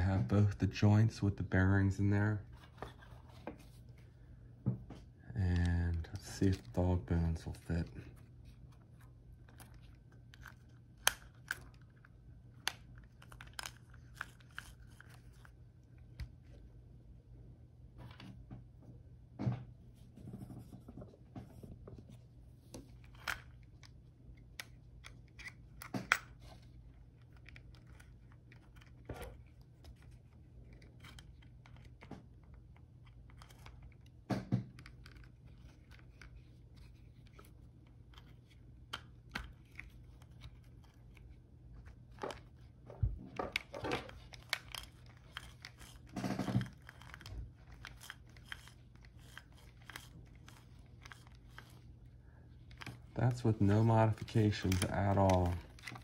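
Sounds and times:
plastic and metal parts clicking: 43.3s - 51.8s, 54.1s - 56.0s.

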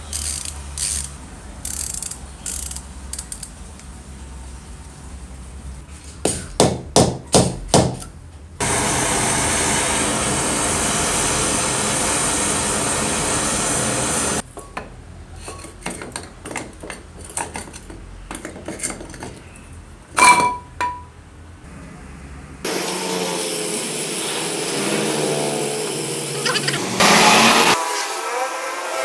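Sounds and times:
gas torch flame hissing: 8.6s - 14.4s
metal clinks and knocks: 20.2s - 21.1s.

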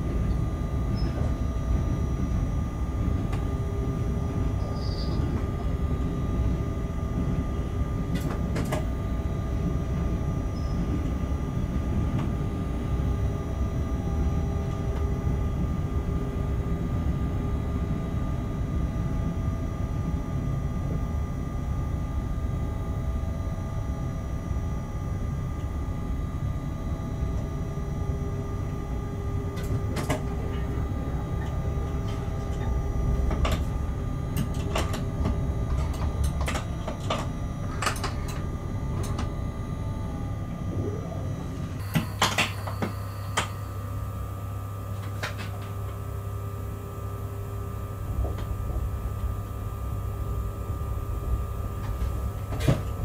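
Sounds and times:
locomotive equipment humming: 0.0s - 53.0s.

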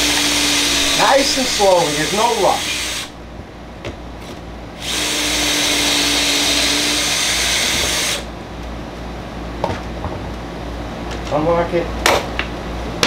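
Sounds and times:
cordless drill drilling into wood: 0.0s - 3.1s, 4.8s - 8.3s.

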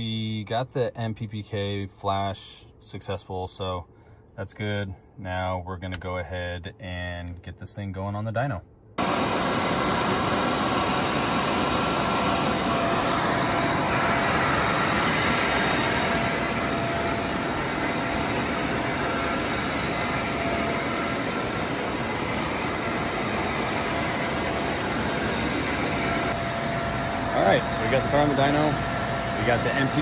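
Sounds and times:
faint steady whine: 0.0s - 30.0s
cooling fan blowing air: 9.0s - 30.0s.

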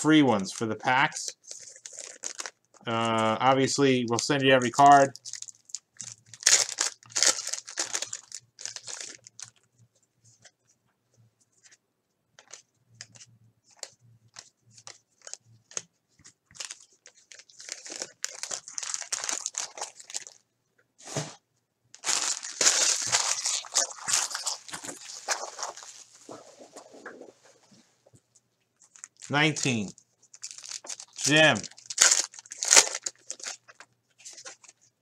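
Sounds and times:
foil wrappers crinkling and tearing: 0.5s - 3.3s, 4.7s - 9.7s, 16.5s - 20.4s, 22.0s - 27.3s, 28.8s - 34.8s.

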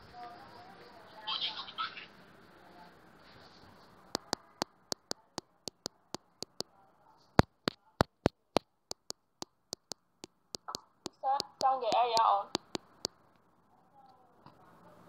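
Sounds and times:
sharp clicks: 4.2s - 6.7s, 7.4s - 13.5s.

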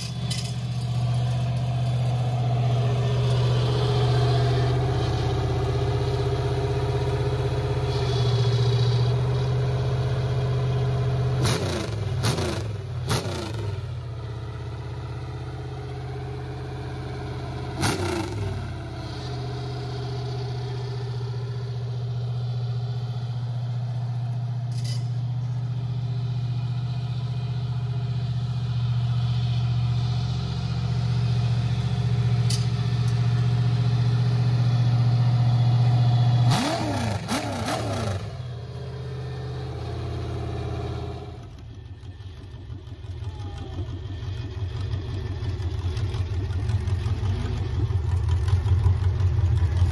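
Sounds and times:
engine through open exhaust stacks: 0.0s - 49.9s
engine revving blips: 11.3s - 14.0s, 17.7s - 19.2s, 35.7s - 38.6s.

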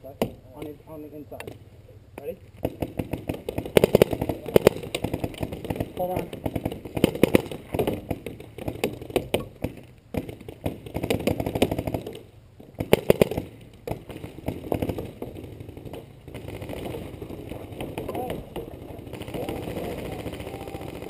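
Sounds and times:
paintball markers firing: 2.2s - 21.0s.

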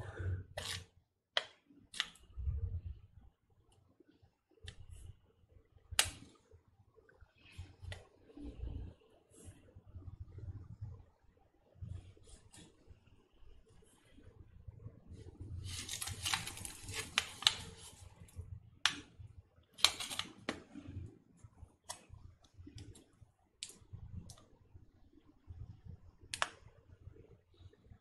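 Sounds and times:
foil sachet crinkling: 15.6s - 17.9s.

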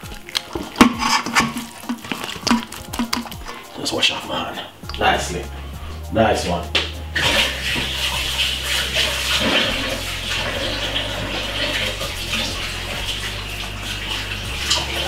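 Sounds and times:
tap running: 0.0s - 3.6s
hands rinsed under water: 0.0s - 15.0s.

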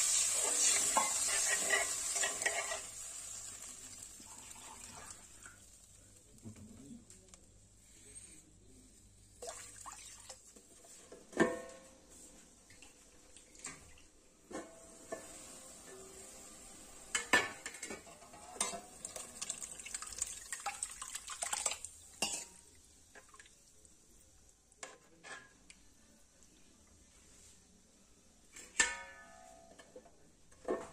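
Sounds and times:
spoon scraping pan: 0.3s - 3.0s.

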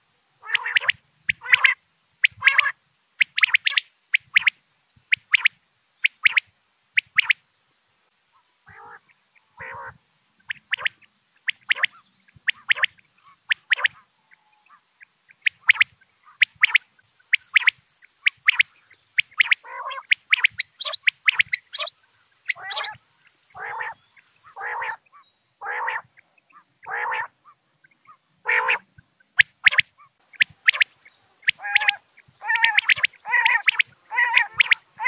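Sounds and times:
longer lower bird calls: 0.0s - 7.4s, 8.3s - 35.0s
quail short sharp calls: 0.4s - 7.4s, 8.4s - 35.0s.

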